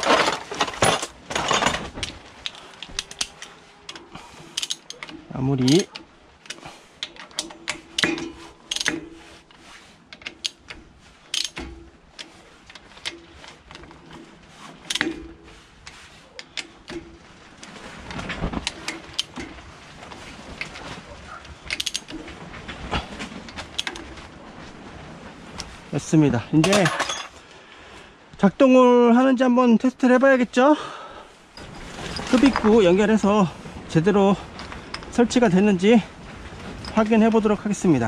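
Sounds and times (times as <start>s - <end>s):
metal clinks: 31.6s - 32.9s.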